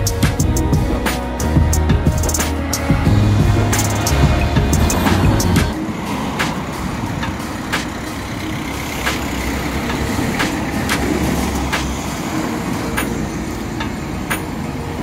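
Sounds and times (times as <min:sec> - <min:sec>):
engine low rumble: 0:00.0 - 0:05.8.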